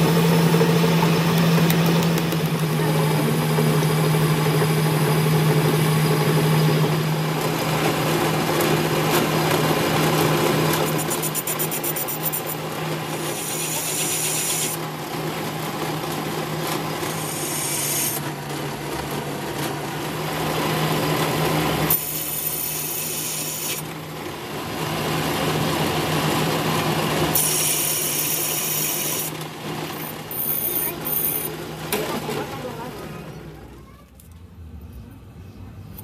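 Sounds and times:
metal lathe humming: 0:00.0 - 0:32.2
high scraping cutting noise: 0:10.8 - 0:12.6, 0:17.0 - 0:18.3.

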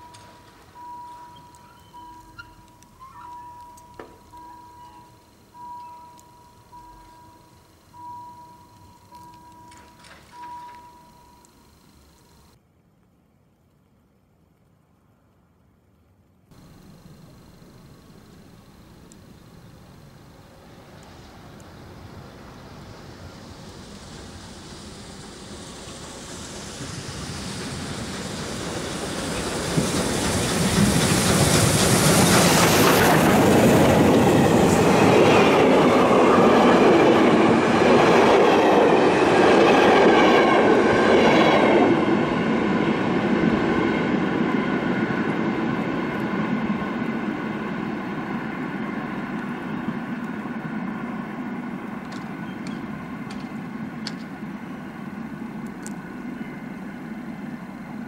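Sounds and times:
steam train rumbling past: 0:00.0 - 0:12.5, 0:16.5 - 0:58.0
wheels clicking over rail joints: 0:00.0 - 0:12.6, 0:24.0 - 0:41.6, 0:51.7 - 0:54.8.

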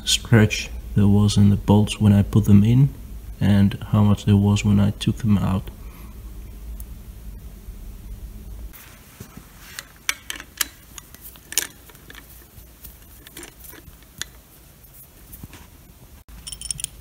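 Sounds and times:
socket tool clicking and rattling: 0:10.0 - 0:12.4, 0:16.4 - 0:17.0.

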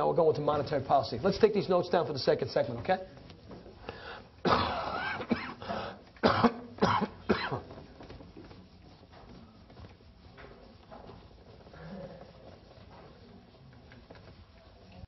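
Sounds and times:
person clearing throat: 0:04.4 - 0:07.7
person coughing: 0:04.4 - 0:07.7.

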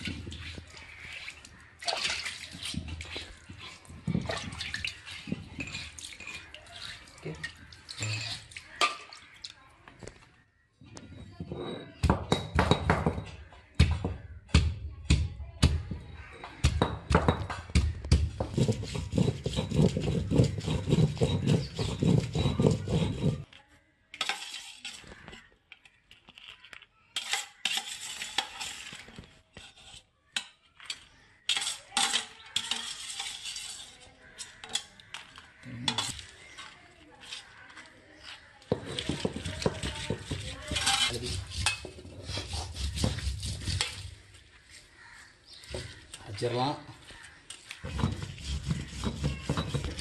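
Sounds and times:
stone roller grinding on stone slab: 0:02.8 - 0:06.6, 0:18.1 - 0:23.5, 0:27.2 - 0:30.0, 0:31.5 - 0:34.9, 0:38.6 - 0:44.2, 0:47.8 - 0:50.0.

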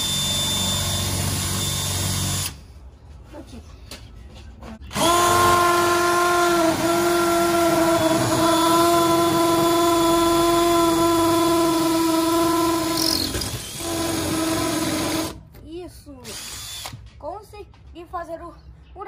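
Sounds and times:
cordless drill boring into brick: 0:00.0 - 0:02.6, 0:04.9 - 0:15.4, 0:16.3 - 0:17.0.

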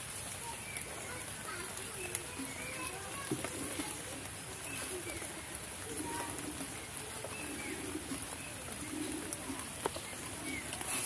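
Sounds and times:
dove cooing: 0:02.3 - 0:11.0.

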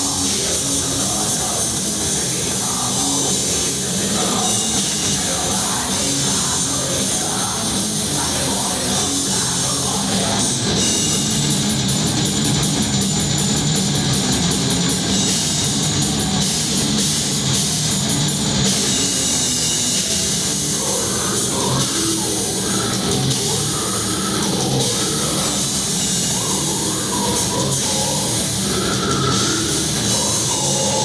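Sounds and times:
distorted electric guitars: 0:00.0 - 0:31.0
pounding drum kit: 0:00.0 - 0:31.0.

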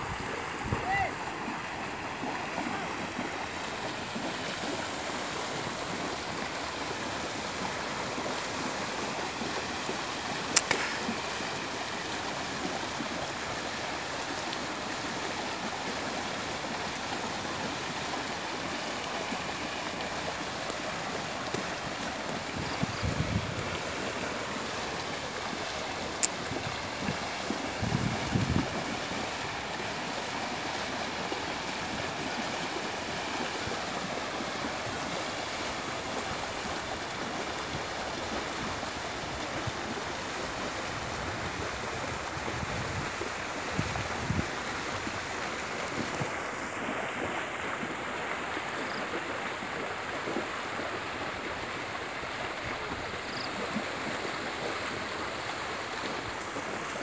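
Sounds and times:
animals splashing through water: 0:00.0 - 0:57.0
wind buffeting microphone: 0:22.4 - 0:24.2, 0:26.4 - 0:29.5, 0:40.8 - 0:46.4.

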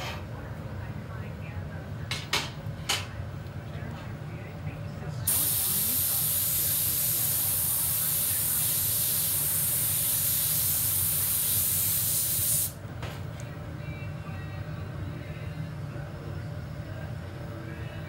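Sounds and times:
furnace burners roaring: 0:00.0 - 0:18.0
pressurised jet hissing: 0:05.3 - 0:12.8.

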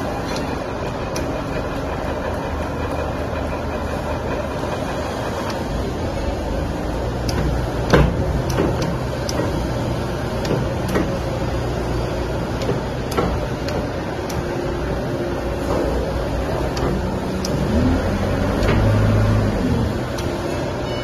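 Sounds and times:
uncoiling machine motor hum: 0:00.0 - 0:21.0
short clicks and clunks: 0:07.2 - 0:09.7, 0:18.5 - 0:19.3.

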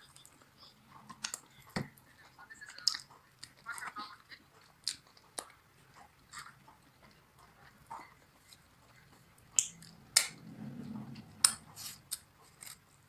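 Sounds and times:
person chewing and lip-smacking: 0:00.0 - 0:10.4.

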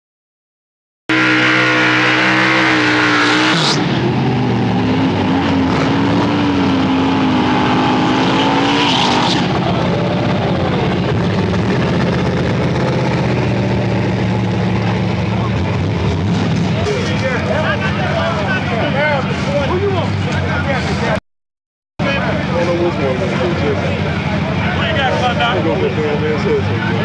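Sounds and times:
racing car engine revving: 0:01.1 - 0:21.2.

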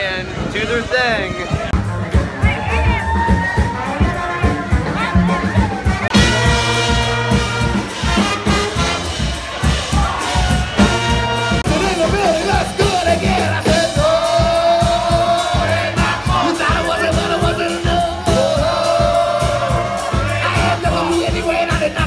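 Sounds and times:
brass band playing: 0:00.6 - 0:22.0
person singing: 0:11.7 - 0:22.0.

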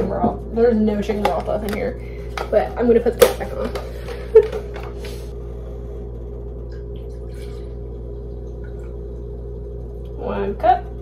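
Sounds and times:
steady low hum: 0:00.0 - 0:11.0
liquid pouring into a cup: 0:06.6 - 0:10.2.

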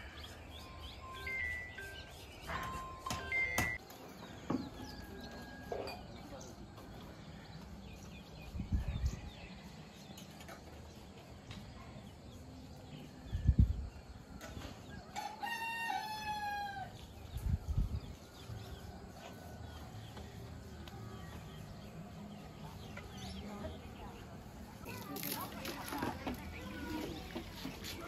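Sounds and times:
rooster crowing: 0:15.2 - 0:16.9.

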